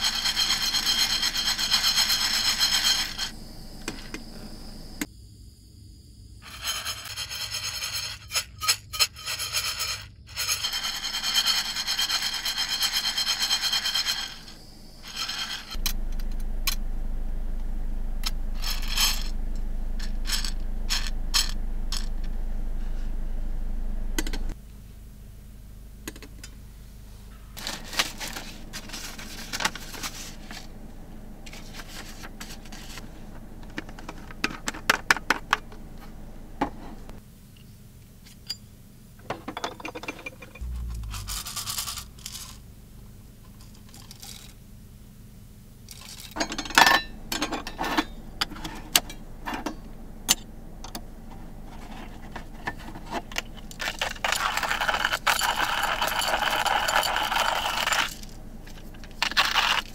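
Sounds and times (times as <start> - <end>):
coffee beans rattling in metal pan: 0.0 - 3.3, 6.5 - 15.8, 40.4 - 42.6, 52.7 - 58.4, 59.0 - 59.9
hand coffee grinder crunching: 51.8 - 59.9.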